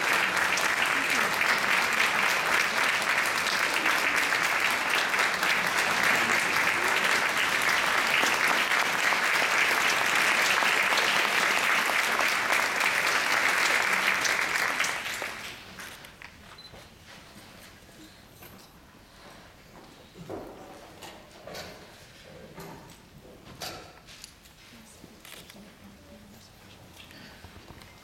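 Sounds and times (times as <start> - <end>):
audience applauding: 0.0 - 15.9.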